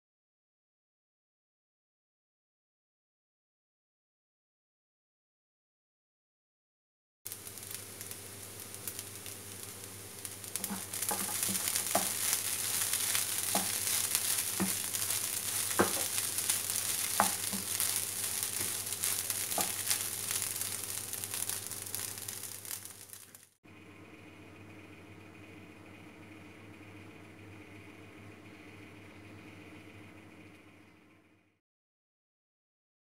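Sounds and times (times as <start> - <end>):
rice sizzling in a pan: 7.3 - 23.6.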